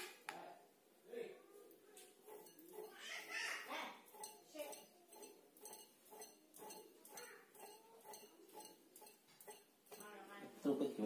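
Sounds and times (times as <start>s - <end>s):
tool scraping skin: 2.2s - 3.3s, 4.1s - 10.1s.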